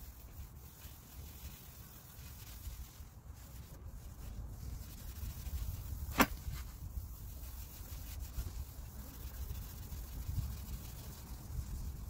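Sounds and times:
abrasive pad rubbing plastic: 0:00.0 - 0:12.0
wind on microphone: 0:02.4 - 0:12.0.

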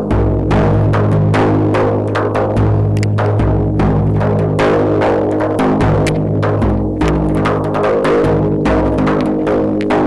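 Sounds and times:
frame drum struck by hand: 0:00.0 - 0:10.0.

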